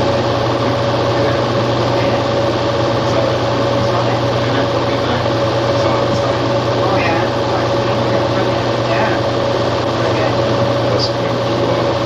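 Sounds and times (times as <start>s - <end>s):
mechanical hum and whir: 0.0s - 12.0s.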